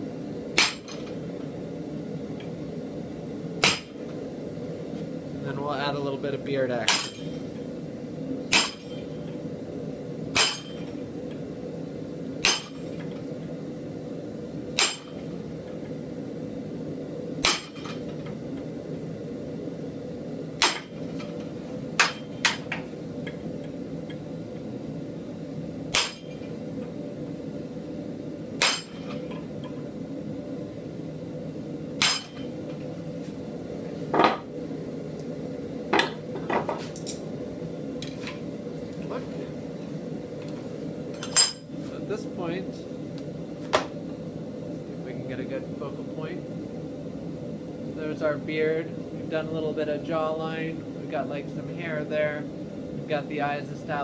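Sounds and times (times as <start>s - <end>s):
steady hum: 0.0s - 54.0s
hammer striking chisel: 10.4s - 10.8s.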